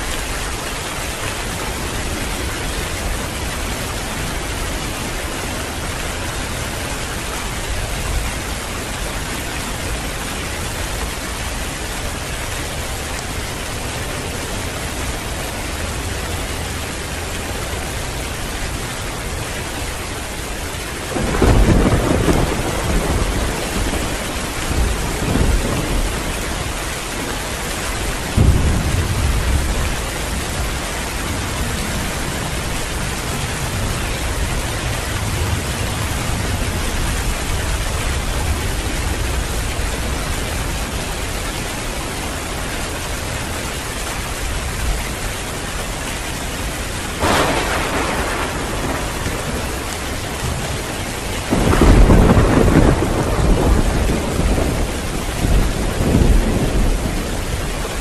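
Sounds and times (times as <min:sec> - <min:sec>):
heavy rain pouring: 0:00.0 - 0:58.0
thunder rumbling and cracking: 0:20.3 - 0:41.8, 0:47.0 - 0:58.0.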